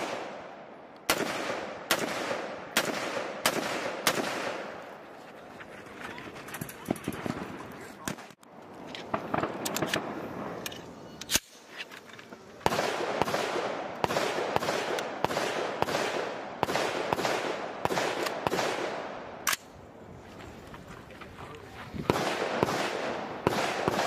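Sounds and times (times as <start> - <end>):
rifle shots with echo: 0.0 - 4.9, 12.6 - 19.7, 22.1 - 24.0.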